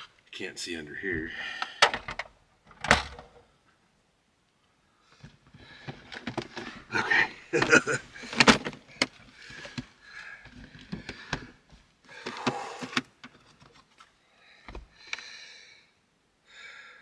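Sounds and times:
rattling and shuffling: 0:05.2 - 0:14.9
plastic bins clicking and knocking: 0:05.6 - 0:06.9, 0:07.6 - 0:11.6.

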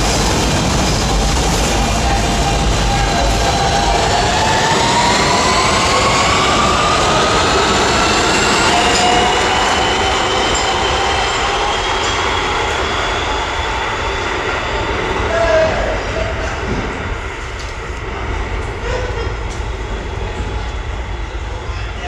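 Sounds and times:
subway train motors whining: 0:00.0 - 0:22.0
wheels rumbling on rails: 0:00.0 - 0:22.0.

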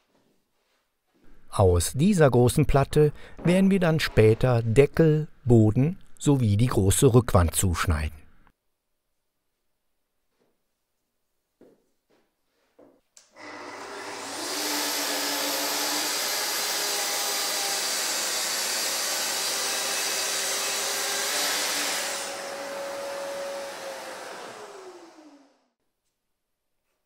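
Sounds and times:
circular saw cutting: 0:13.2 - 0:25.6
dust extractor running: 0:13.4 - 0:25.6.

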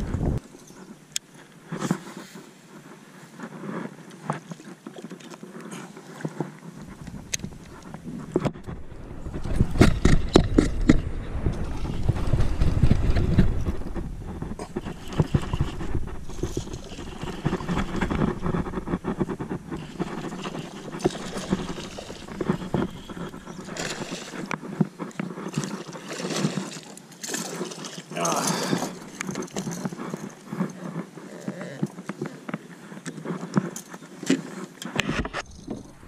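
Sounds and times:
wind buffeting microphone: 0:00.0 - 0:00.4, 0:06.8 - 0:25.8
water lapping against kayak: 0:00.0 - 0:36.0.

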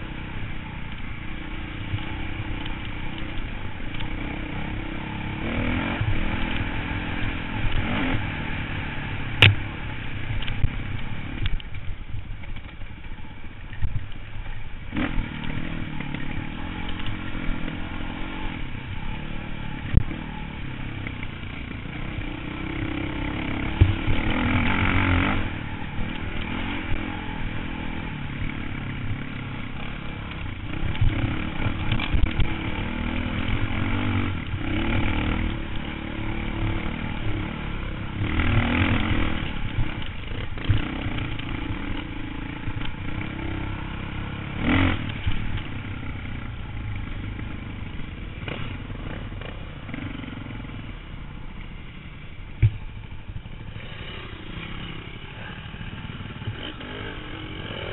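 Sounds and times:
dirt bike engine revving: 0:00.0 - 0:11.6, 0:14.9 - 0:57.9.

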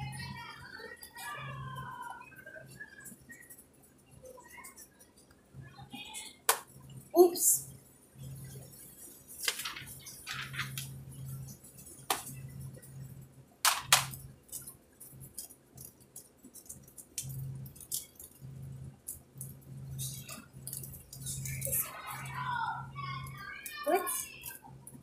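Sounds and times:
low hum: 0:06.7 - 0:15.4
plastic wrapper rustling: 0:08.6 - 0:12.4
plastic items clicking: 0:09.4 - 0:10.9, 0:13.7 - 0:18.4.

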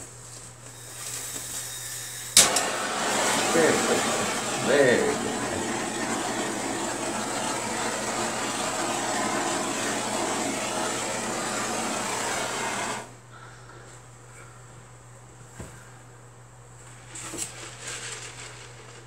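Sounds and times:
butane torch flame hissing: 0:00.8 - 0:13.2.

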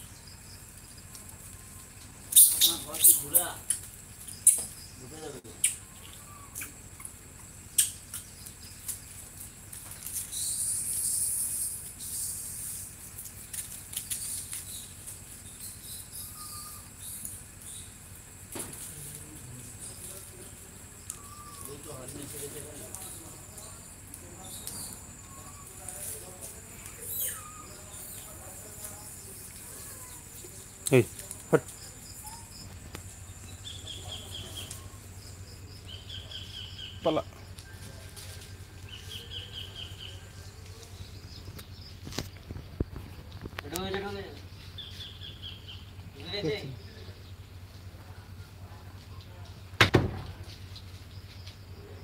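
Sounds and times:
steady low hum: 0:00.0 - 0:52.0
high pulsed chirping calls: 0:02.3 - 0:07.1, 0:10.2 - 0:12.9, 0:14.1 - 0:18.0
high hissing buzz: 0:10.1 - 0:20.1.

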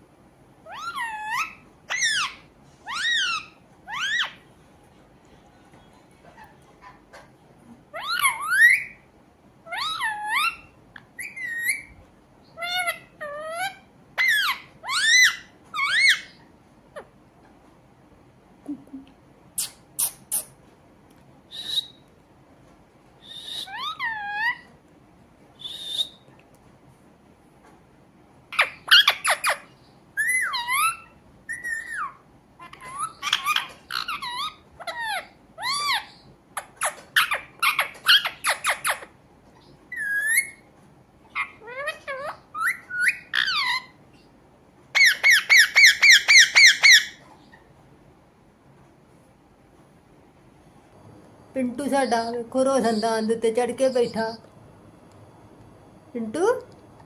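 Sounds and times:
parakeet chirps and whistles: 0:00.6 - 0:04.4, 0:07.9 - 0:09.0, 0:09.7 - 0:16.4, 0:19.6 - 0:20.6, 0:21.5 - 0:22.1, 0:23.2 - 0:24.7, 0:25.6 - 0:26.3, 0:28.5 - 0:40.7, 0:41.3 - 0:44.0, 0:44.9 - 0:47.2
parakeet harsh squawks: 0:00.7 - 0:04.4, 0:12.6 - 0:16.4, 0:45.0 - 0:47.2.

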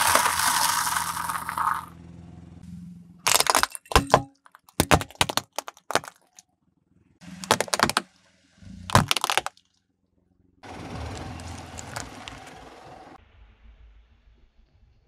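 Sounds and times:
plastic toys cracking under tyre: 0:00.0 - 0:01.9, 0:03.3 - 0:06.4, 0:07.4 - 0:08.1, 0:08.9 - 0:09.6, 0:11.2 - 0:12.5.

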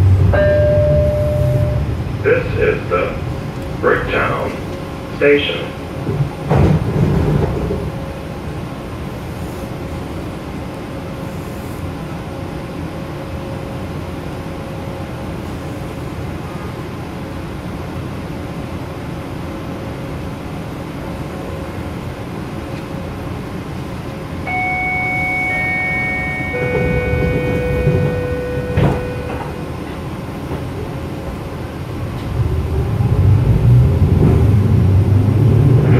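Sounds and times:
train electrical hum: 0:00.0 - 0:35.9
train motor whine: 0:24.4 - 0:30.6.

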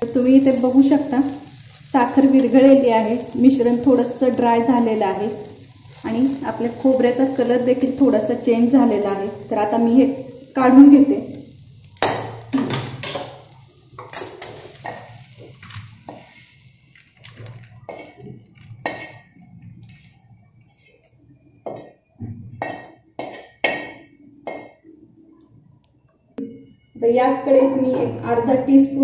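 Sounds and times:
metal spoon scraping a pan: 0:11.9 - 0:21.1.

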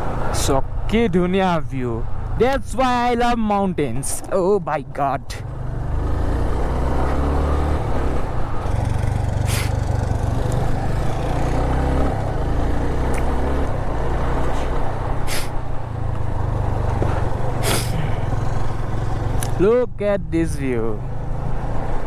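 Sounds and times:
motorcycle engine running: 0:08.6 - 0:13.0
short hisses: 0:09.5 - 0:09.8, 0:15.2 - 0:15.6, 0:17.6 - 0:18.0.

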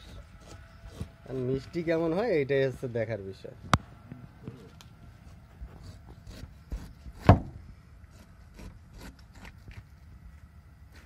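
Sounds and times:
blade cutting pineapple rind: 0:04.5 - 0:07.4, 0:08.1 - 0:10.0.

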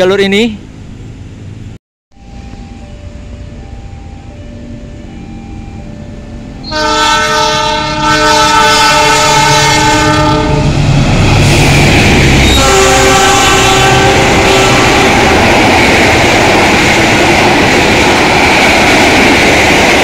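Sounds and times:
train passing at speed: 0:00.0 - 0:20.0
train horn blast: 0:06.6 - 0:10.8, 0:12.4 - 0:15.6.

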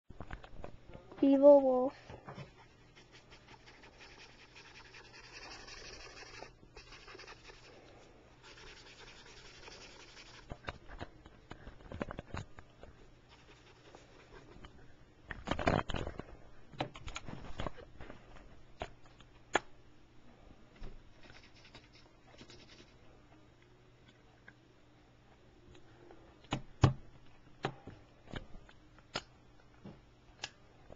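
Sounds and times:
marker scratching on paper: 0:02.6 - 0:07.7, 0:08.4 - 0:10.6.

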